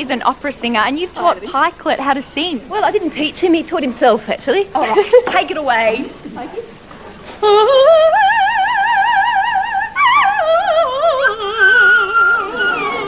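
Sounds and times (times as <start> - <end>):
woman singing opera-style: 7.4 - 13.0
small dog howling: 10.0 - 13.0.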